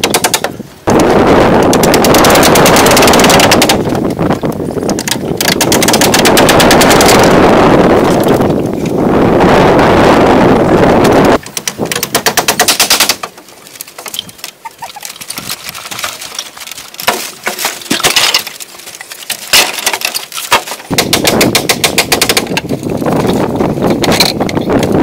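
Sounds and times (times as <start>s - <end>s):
steady rushing noise: 0.7s - 12.8s
hand tools knocking wood: 11.4s - 16.4s, 17.0s - 18.5s, 19.2s - 22.7s.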